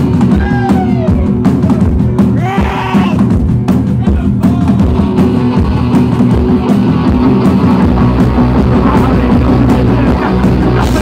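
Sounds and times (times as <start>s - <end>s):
bass guitar: 0.0s - 11.0s
distorted electric guitars: 0.0s - 11.0s
drum kit steady beat: 0.0s - 11.0s.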